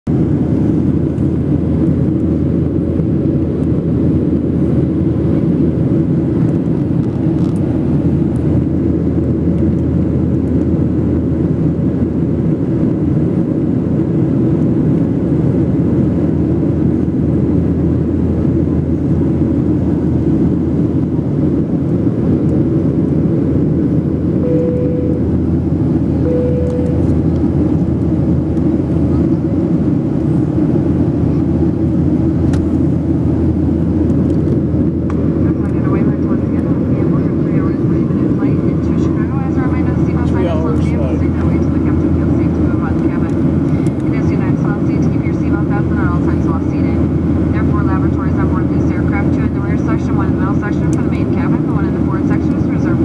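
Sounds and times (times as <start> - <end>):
jet engine roar in cabin: 0.1 - 53.0
short single tone: 24.4 - 25.4, 26.2 - 27.2.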